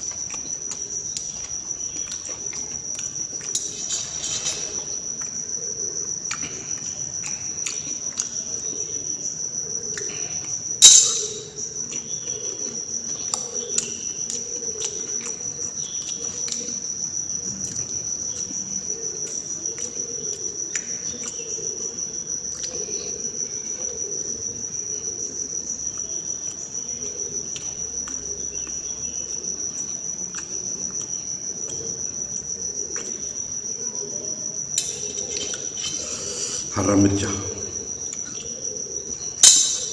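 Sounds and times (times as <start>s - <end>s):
cricket trill: 0.0s - 39.9s
sharp ringing knock: 10.8s - 11.5s, 39.4s - 39.9s.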